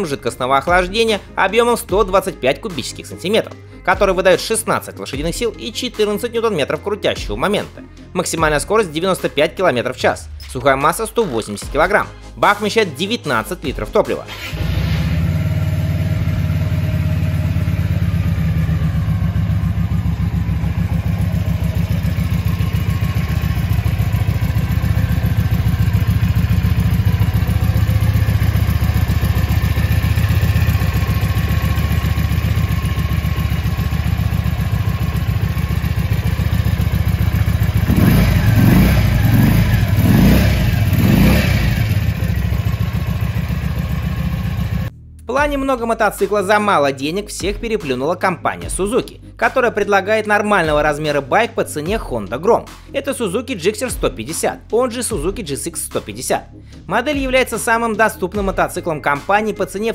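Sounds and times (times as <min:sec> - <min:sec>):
motorcycle engine idling and revving: 0:14.3 - 0:44.9.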